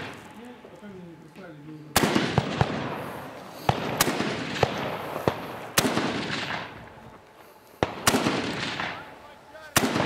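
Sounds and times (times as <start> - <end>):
rifle shots: 1.9 - 6.9, 7.8 - 9.1, 9.7 - 10.0
rolling gunshot echo: 1.9 - 6.9, 7.8 - 9.1, 9.7 - 10.0
fainter gunshot cracks: 2.0 - 6.8, 7.8 - 9.0, 9.8 - 10.0.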